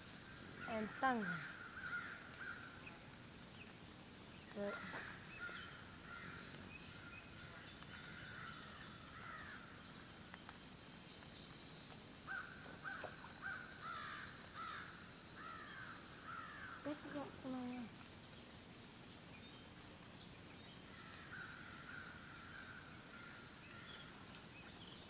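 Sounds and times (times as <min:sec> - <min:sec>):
pulsing insect trill: 0:00.0 - 0:25.0
bird calling: 0:12.3 - 0:17.0.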